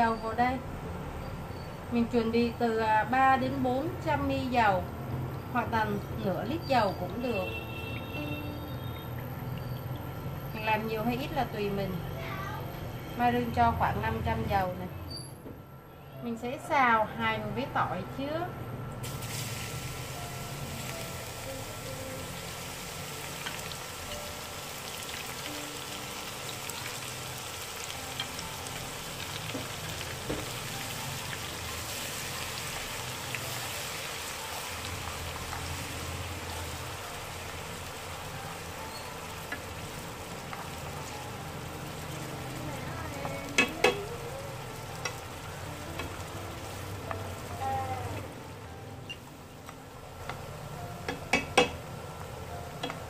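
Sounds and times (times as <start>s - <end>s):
garlic frying in oil: 5.6s - 12.4s, 19.0s - 53.0s
chopsticks stirring: 38.9s - 48.4s.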